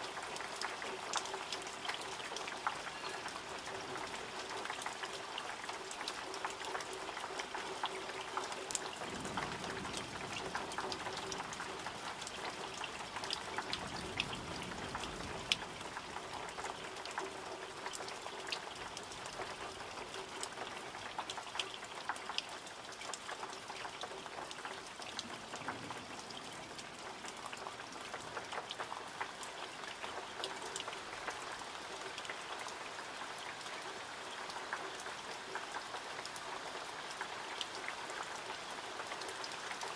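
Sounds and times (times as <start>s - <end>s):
raindrops clicking on surfaces: 0.0s - 39.9s
steady rain falling: 0.0s - 39.9s.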